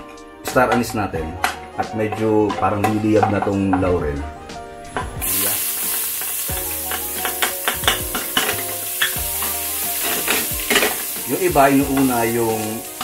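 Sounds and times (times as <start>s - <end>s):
ginger sizzling in hot oil: 5.2s - 13.0s.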